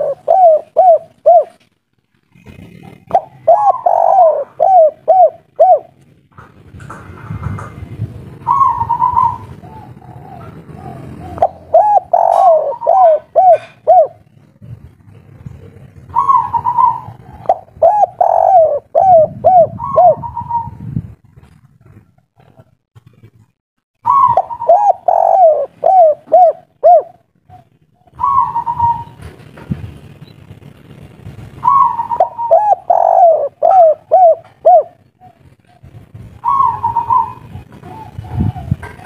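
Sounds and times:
dove cooing: 0:00.0 - 0:01.7, 0:02.3 - 0:06.0, 0:08.4 - 0:20.9, 0:24.0 - 0:29.3, 0:31.6 - 0:39.0.

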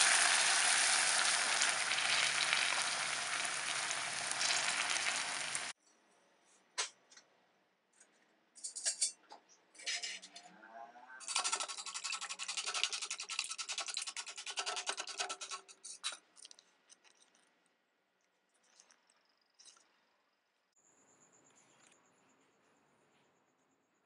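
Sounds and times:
whisk scraping a metal bowl: 0:11.2 - 0:16.1.

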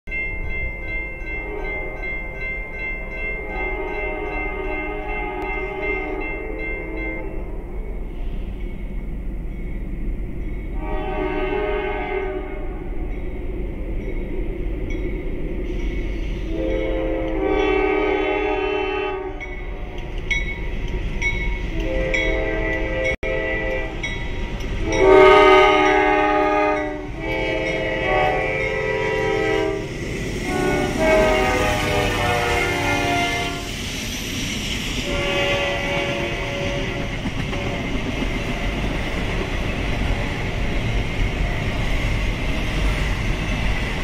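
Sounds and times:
train rumbling: 0:00.1 - 0:44.0
locomotive air horn blasts: 0:01.4 - 0:02.2, 0:03.3 - 0:07.5, 0:10.8 - 0:12.8, 0:16.5 - 0:20.1, 0:21.7 - 0:24.2, 0:24.8 - 0:33.7, 0:35.0 - 0:38.0.

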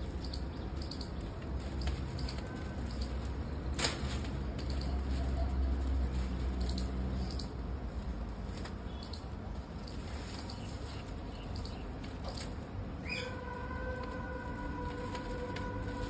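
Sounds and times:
paper crackle: 0:01.2 - 0:06.6, 0:13.3 - 0:16.0
paper crinkling: 0:13.4 - 0:16.0.

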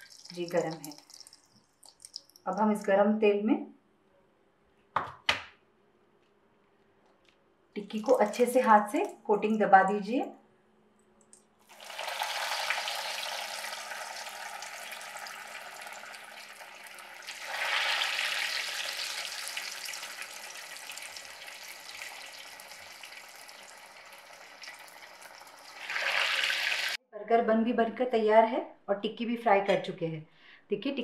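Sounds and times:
patties sizzling in hot oil: 0:11.7 - 0:27.0.

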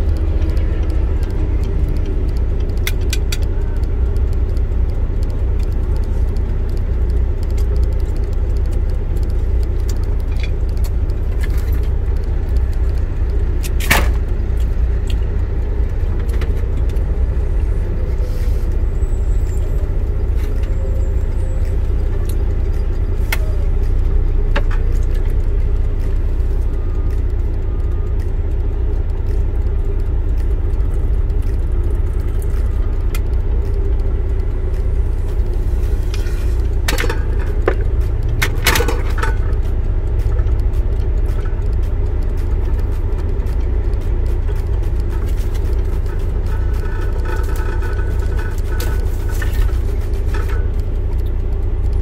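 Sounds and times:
light clicks: 0:00.0 - 0:52.0
truck engine rumbling: 0:00.0 - 0:52.0.

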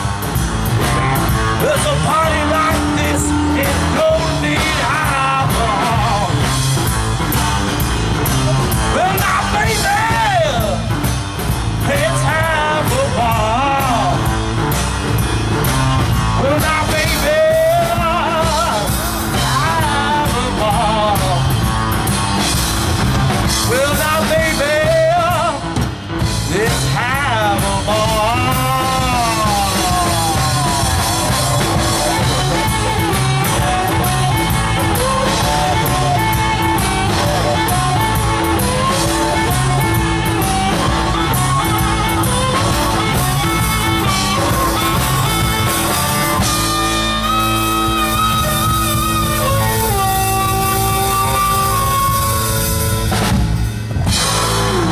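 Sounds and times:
blues-rock band playing: 0:00.0 - 0:54.9
harmonica bending lead line: 0:00.0 - 0:54.9.

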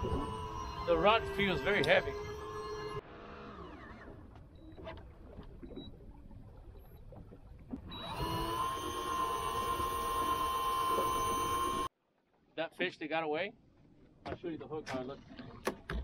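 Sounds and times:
small electric motor whining: 0:00.0 - 0:04.2, 0:07.9 - 0:11.9.

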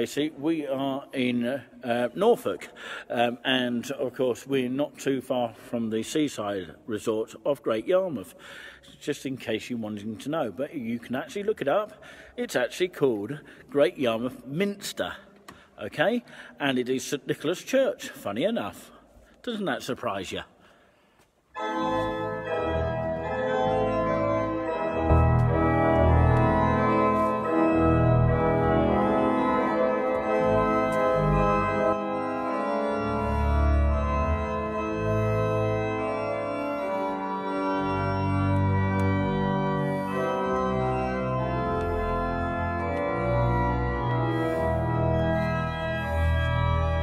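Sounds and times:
church organ chords: 0:21.5 - 0:47.0.

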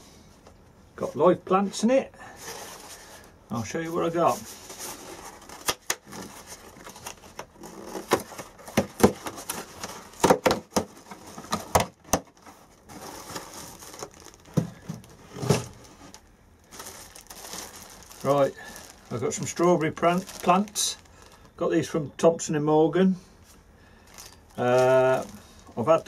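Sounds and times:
cardboard pack rummaging: 0:02.3 - 0:21.6, 0:24.0 - 0:26.0
plastic bag crinkling: 0:02.3 - 0:21.7, 0:23.8 - 0:26.0.

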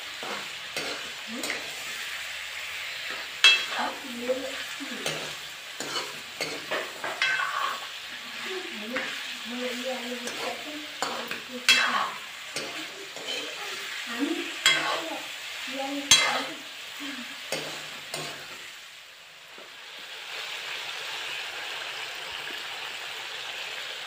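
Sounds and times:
chicken sizzling in hot oil: 0:00.0 - 0:24.0
steel ladle clanking against wok: 0:03.1 - 0:03.8, 0:05.0 - 0:07.8.

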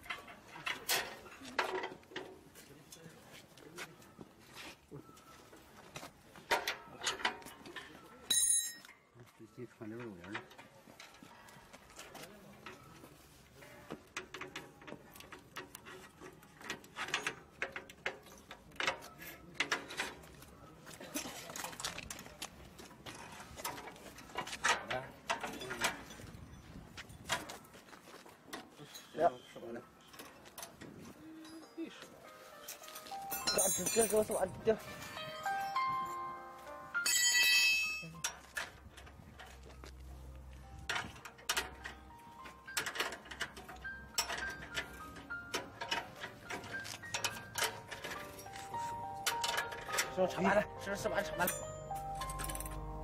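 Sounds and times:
metal cable clicks and clatters: 0:00.0 - 0:03.0, 0:14.0 - 0:26.4, 0:40.8 - 0:50.6
stepped melodic notes: 0:31.3 - 0:38.3, 0:43.6 - 0:53.0
bright bell-like chime: 0:31.4 - 0:38.2, 0:50.3 - 0:53.0.

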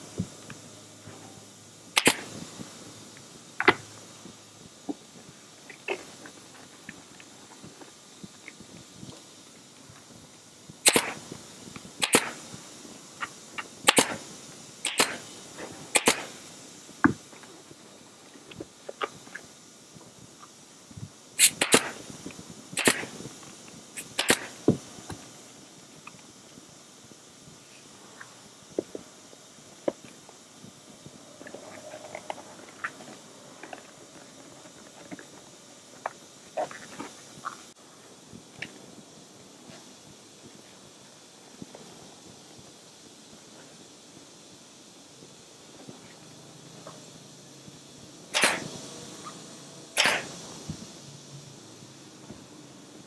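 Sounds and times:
pneumatic staple gun firing: 0:02.0 - 0:02.4, 0:10.8 - 0:11.3, 0:11.9 - 0:12.5, 0:13.2 - 0:15.3, 0:15.9 - 0:16.4, 0:21.4 - 0:22.0, 0:22.8 - 0:23.2, 0:24.0 - 0:24.8, 0:48.3 - 0:48.8, 0:49.9 - 0:50.4.

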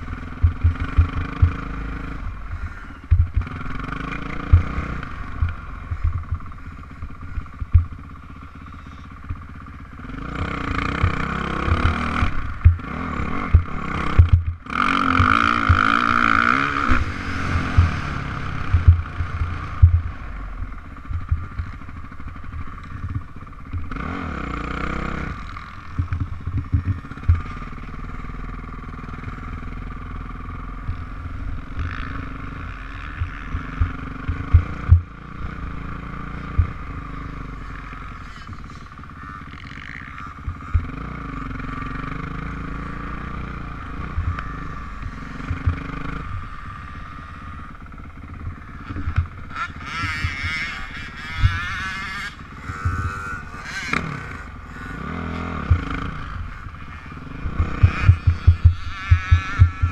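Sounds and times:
dirt bike engine revving: 0:00.0 - 0:59.9
wind thumps on microphone: 0:03.1 - 0:03.5, 0:18.6 - 0:20.2.

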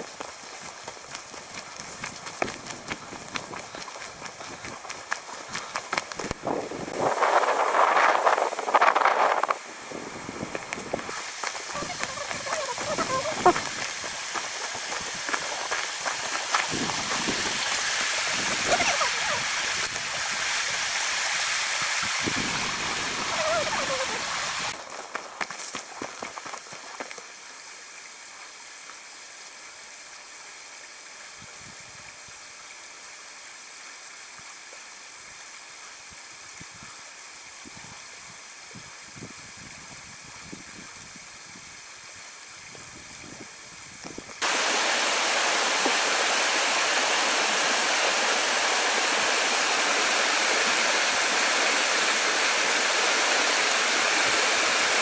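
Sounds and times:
water rushing over rocks: 0:00.0 - 0:27.4, 0:44.2 - 0:55.0.

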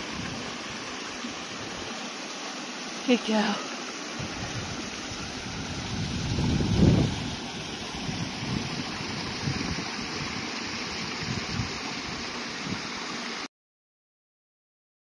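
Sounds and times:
wind buffeting microphone: 0:00.0 - 0:00.8, 0:04.2 - 0:12.9
stream rushing over rocks: 0:00.0 - 0:13.5.

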